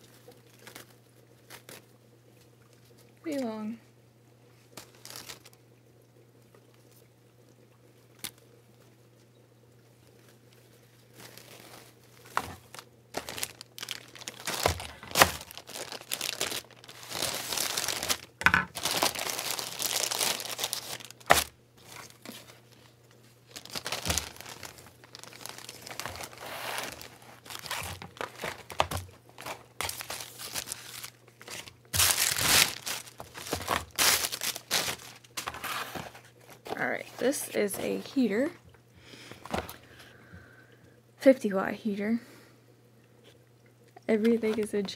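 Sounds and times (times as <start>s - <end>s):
plastic bags crinkling and tearing: 0.0s - 1.9s, 4.7s - 5.6s, 11.0s - 38.3s.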